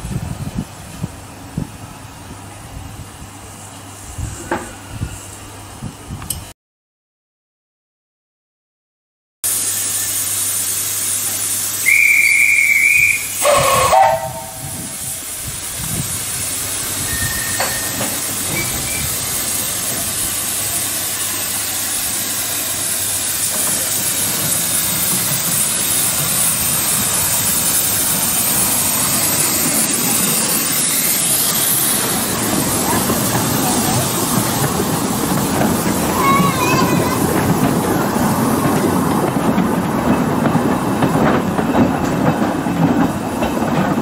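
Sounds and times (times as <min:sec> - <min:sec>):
steam locomotive hissing: 0:00.0 - 0:06.1, 0:09.4 - 0:44.0
steam whistle blasts: 0:11.8 - 0:15.1, 0:17.0 - 0:18.0.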